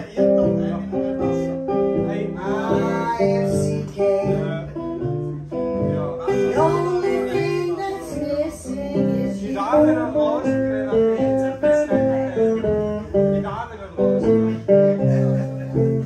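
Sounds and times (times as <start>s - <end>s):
guitar playing chords: 0.0s - 16.0s
woman singing: 2.4s - 4.4s, 6.3s - 9.9s.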